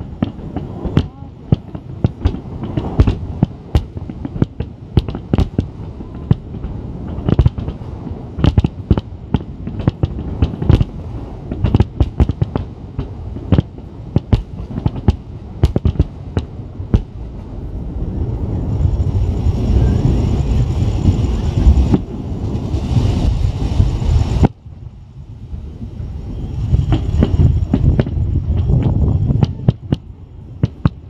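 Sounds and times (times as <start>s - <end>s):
firework bangs: 0.0s - 17.2s, 26.7s - 30.0s
low rumble: 0.0s - 31.0s
rush of noise: 0.0s - 31.0s.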